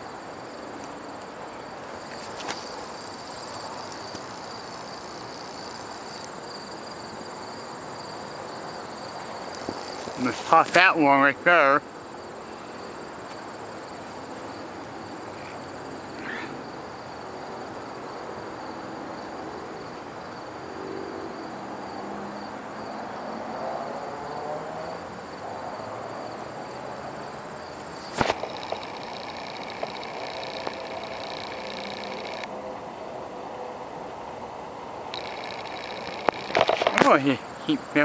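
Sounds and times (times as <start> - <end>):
insects chirping: 0.0 - 32.5, 35.1 - 38.0
outdoor background hiss: 0.0 - 38.0
sharp clicks: 28.1 - 32.5, 35.1 - 37.2.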